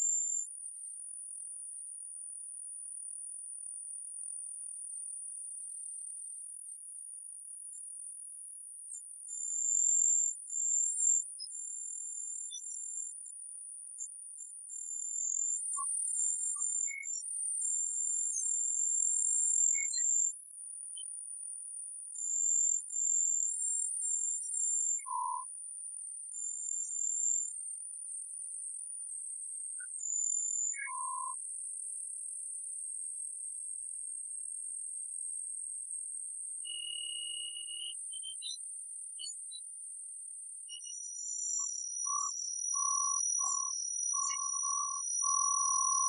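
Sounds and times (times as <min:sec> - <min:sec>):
high-pitched sine tones: 0:40.7 - 0:46.0.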